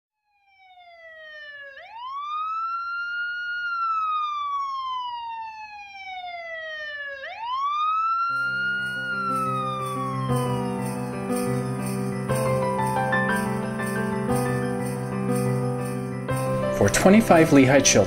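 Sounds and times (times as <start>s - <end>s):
police siren wailing: 0.2s - 14.8s
festive holiday music with sleigh bells: 8.5s - 18.0s.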